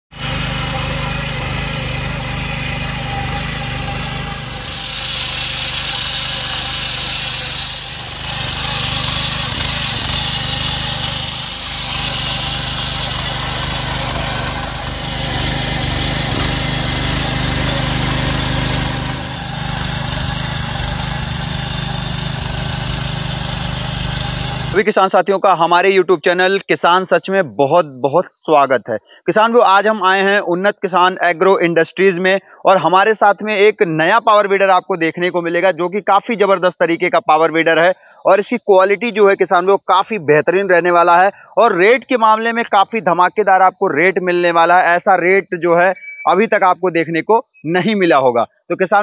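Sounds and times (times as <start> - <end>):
power weeder engine churning soil: 0.1 - 24.8.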